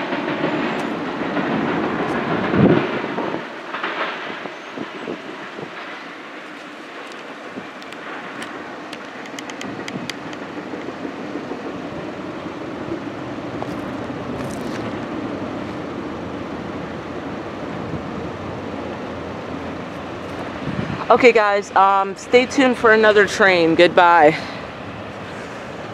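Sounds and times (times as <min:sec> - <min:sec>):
train wheels rumbling on rail: 0:00.0 - 0:25.9.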